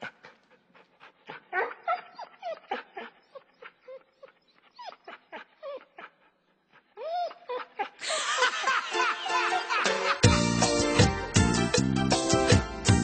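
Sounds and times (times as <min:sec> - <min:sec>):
puppies yipping and whimpering: 0:01.6 - 0:06.1.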